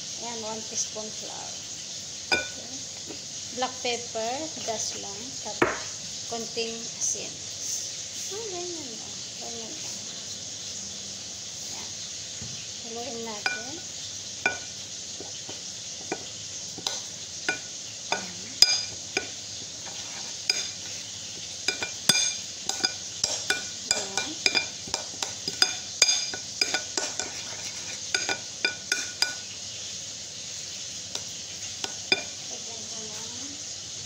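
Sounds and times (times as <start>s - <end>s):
metal spoon clinking in ceramic bowl: 2.3s - 2.6s, 13.4s - 13.8s, 14.4s - 14.7s, 16.8s - 20.8s, 21.7s - 29.4s.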